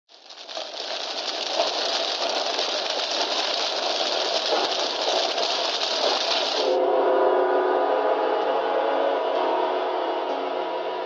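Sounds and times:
film crackle hiss with pops: 0.0s - 6.8s.

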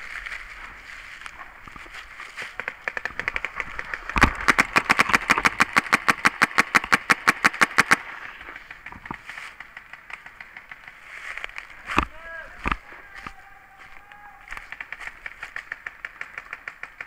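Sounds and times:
paintball marker rapid firing: 2.4s - 11.2s, 14.5s - 17.0s.

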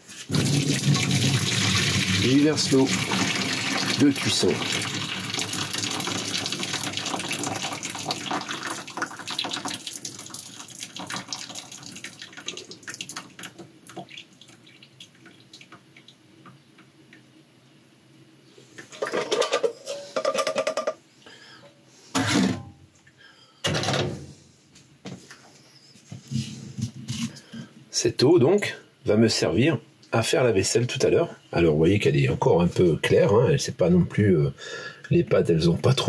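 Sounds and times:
water pouring into metal sink: 0.2s - 15.7s.

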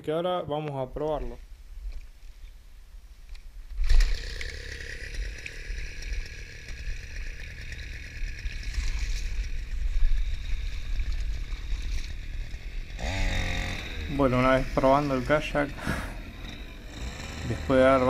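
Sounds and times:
small outboard motor running: 3.8s - 18.0s.

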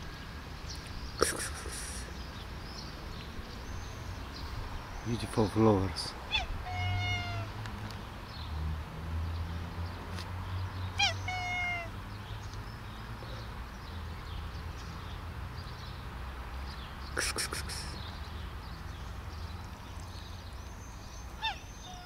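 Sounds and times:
cat meowing: 6.3s - 7.5s, 11.0s - 11.9s, 21.4s - 22.0s.

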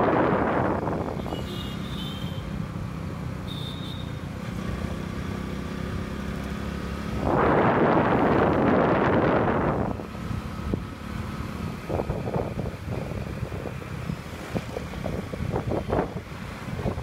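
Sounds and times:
wind gusts on microphone: 0.0s - 1.3s, 6.9s - 17.0s
vehicle engine and road noise: 0.0s - 17.0s.

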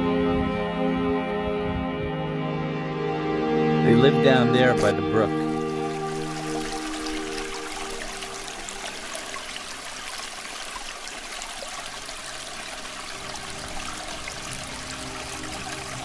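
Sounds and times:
brook trickling: 4.8s - 16.0s.

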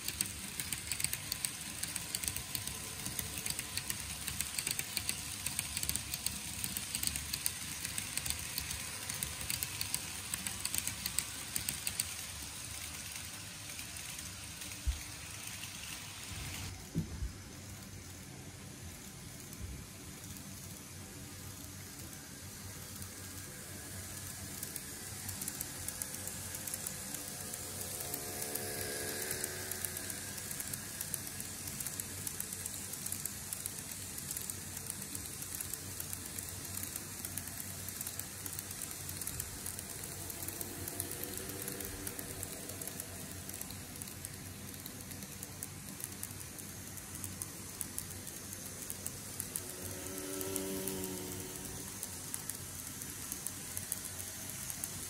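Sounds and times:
faint motor whine: 0.0s - 55.0s
model train wheels rolling on track: 0.0s - 55.0s.

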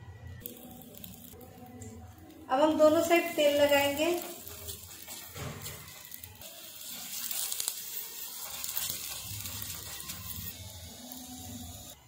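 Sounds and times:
oil sizzling: 0.4s - 12.0s
steel spoon scraping: 3.3s - 11.9s.

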